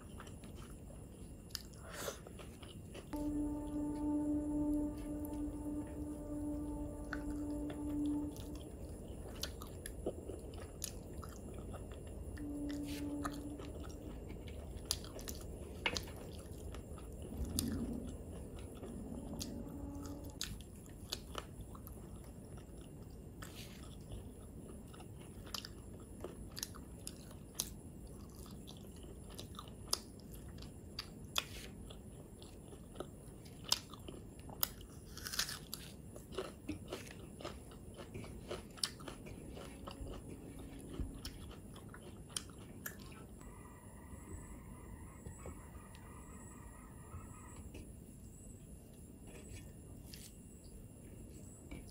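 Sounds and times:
person chewing food: 0.0 - 43.5
short pitched hum: 3.2 - 9.2.

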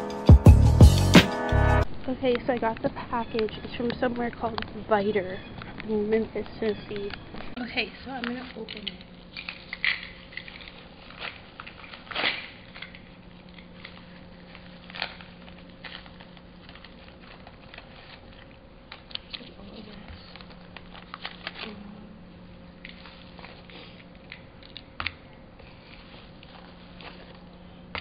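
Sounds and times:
steady low hum: 0.8 - 28.0.

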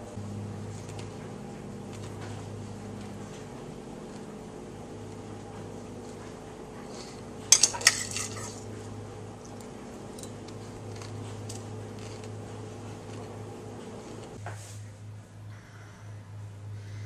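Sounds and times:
spoon clinking ceramic bowl: 7.5 - 8.6.

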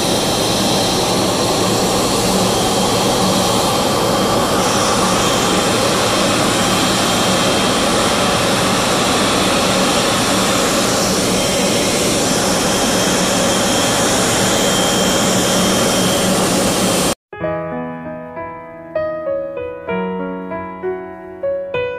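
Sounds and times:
jet engines whining: 0.0 - 17.2.

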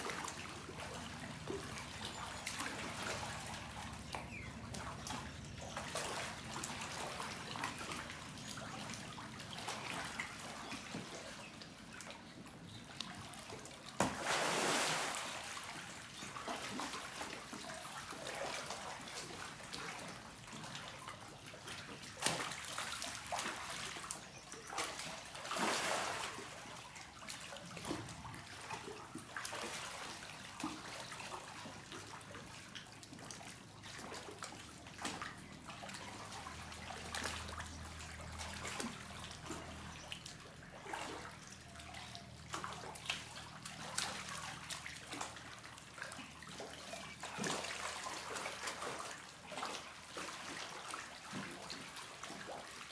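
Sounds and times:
water trickling and splashing: 0.0 - 52.9
sharp water splash: 14.0 - 15.8, 24.9 - 26.6.

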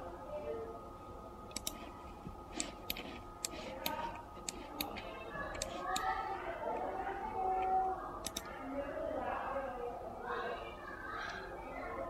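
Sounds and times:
faint background hum: 0.0 - 12.0
computer mouse clicking: 1.5 - 1.9, 2.5 - 6.2, 8.2 - 8.6.

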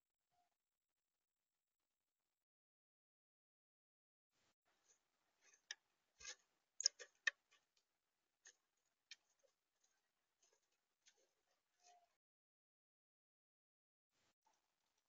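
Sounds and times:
bird pecking seeds at feeder: 5.4 - 7.8.

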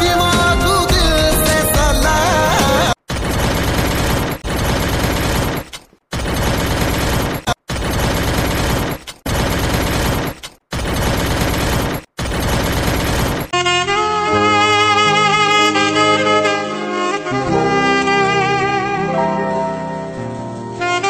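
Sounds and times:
dance backing track: 0.0 - 3.0
machine-gun fire bursts: 3.1 - 13.5.

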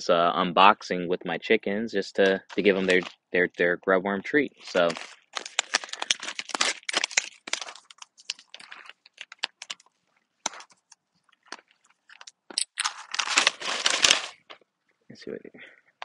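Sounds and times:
paper pouch tearing and crinkling: 2.5 - 3.1, 4.6 - 9.9, 11.5 - 14.4.

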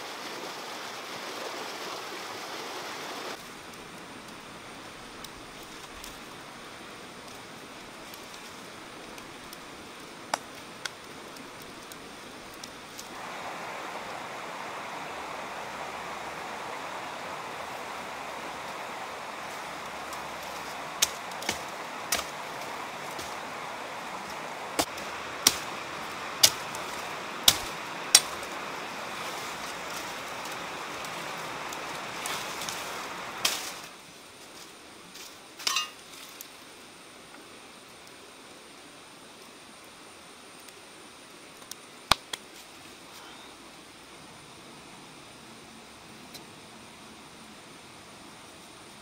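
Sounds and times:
steady outdoor hiss: 0.0 - 49.0
branches snapping: 18.3 - 34.0.

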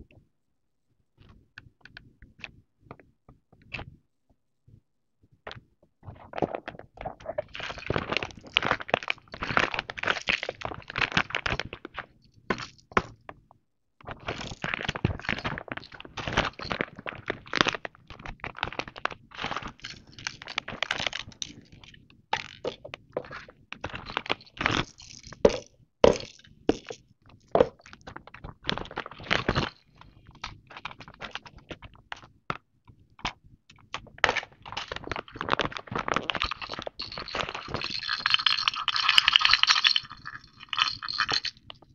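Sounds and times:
plastic toys knocking together: 24.0 - 27.0
plastic packaging crinkling: 34.3 - 41.6.

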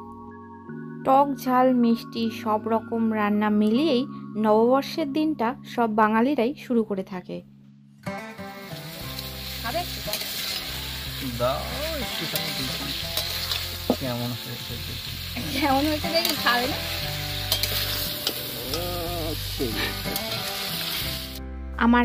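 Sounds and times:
food sizzling in a wok: 8.2 - 21.4
metal spatula scraping a pan: 12.1 - 13.8, 15.6 - 18.5.

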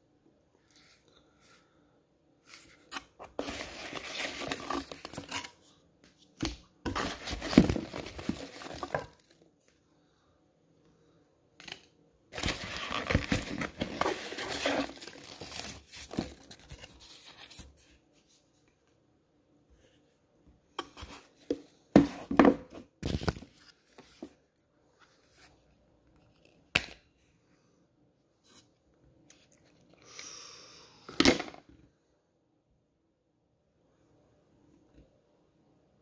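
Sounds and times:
cardboard box and paper being handled: 2.5 - 5.5, 6.9 - 9.3, 12.4 - 18.0.

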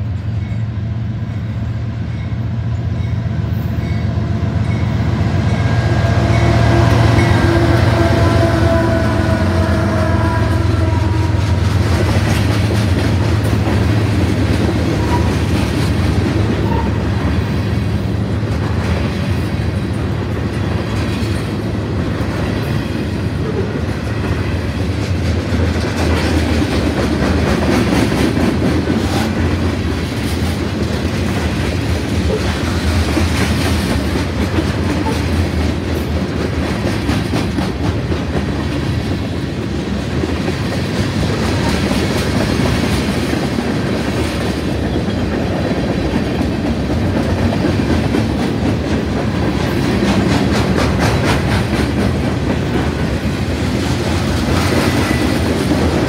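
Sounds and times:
train wheels rumbling on rail: 0.0 - 56.0
wheels clicking over rail joints: 11.5 - 56.0.

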